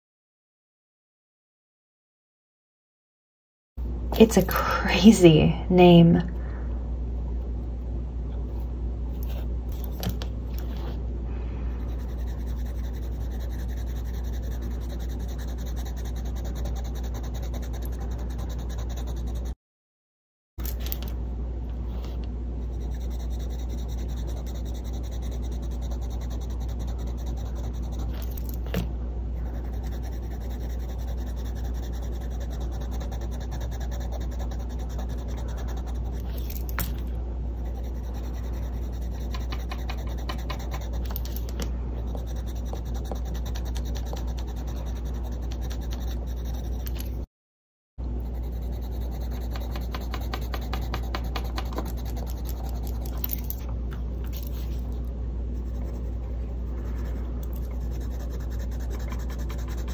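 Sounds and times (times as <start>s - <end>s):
constant low hum: 3.8s - 19.6s, 20.6s - 47.3s, 48.0s - 59.9s
pencil scratching on paper: 11.8s - 19.6s, 22.6s - 28.7s, 29.4s - 36.8s, 37.6s - 41.4s, 42.0s - 47.2s, 48.2s - 53.4s, 55.6s - 59.9s.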